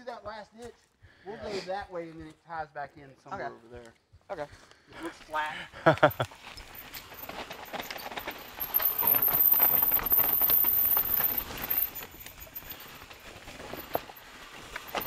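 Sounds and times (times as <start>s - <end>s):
bike tyres clattering over rocks: 5.9s - 15.0s.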